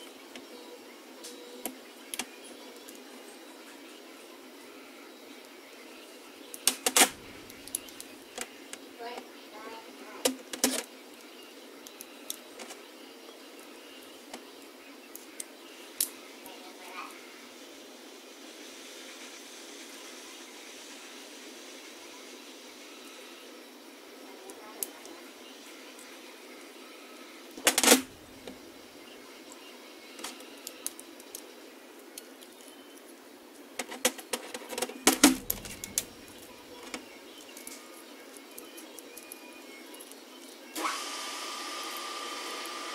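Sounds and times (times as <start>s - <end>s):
faint room hiss: 0.0s - 42.9s.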